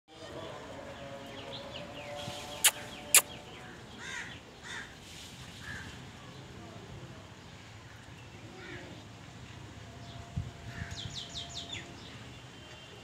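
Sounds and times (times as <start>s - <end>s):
birds chirping: 0.5s - 4.9s.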